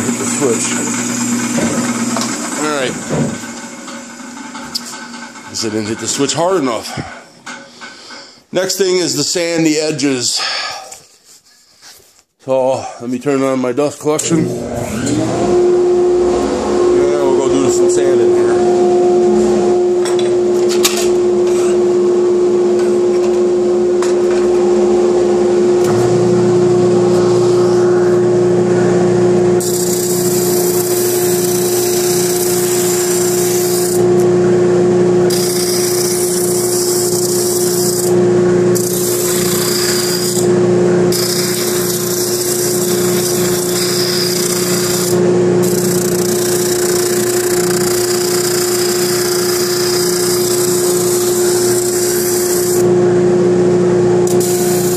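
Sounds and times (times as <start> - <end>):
dust collector humming: 0.0 - 7.8, 14.1 - 54.9
sander motor starting: 0.0 - 8.2, 14.2 - 53.4, 54.2 - 54.9
wood grinding on sanding drum: 29.6 - 34.2, 35.3 - 38.2, 38.8 - 40.5, 41.1 - 52.9.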